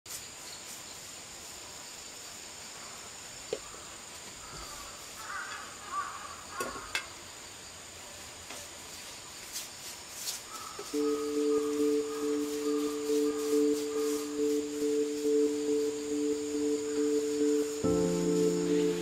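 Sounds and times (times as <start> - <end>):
insects trilling: 1.8 - 8.2, 10.4 - 19.0
bird calling: 10.5 - 19.0.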